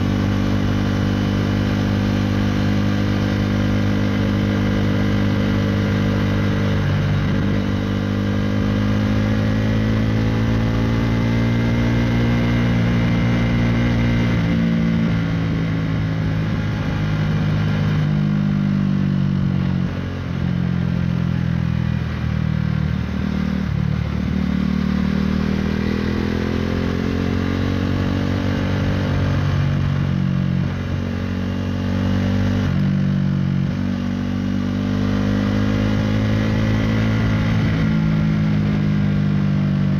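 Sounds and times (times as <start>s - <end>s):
motorcycle engine revving: 0.0s - 39.9s.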